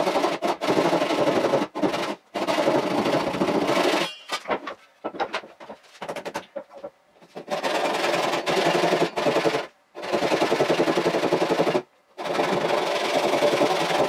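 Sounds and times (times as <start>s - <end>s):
hand saw cutting wood: 0.0s - 4.3s, 7.2s - 14.0s
wood knocking and clattering: 4.1s - 7.0s.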